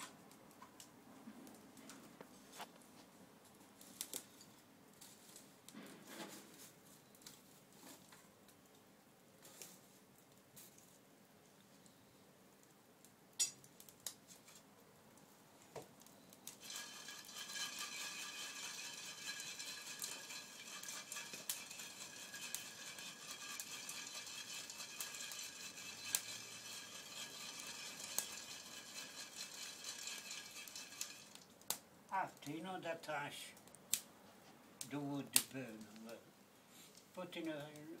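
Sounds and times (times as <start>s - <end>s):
chestnuts sizzling in a pan: 16.2s - 31.8s.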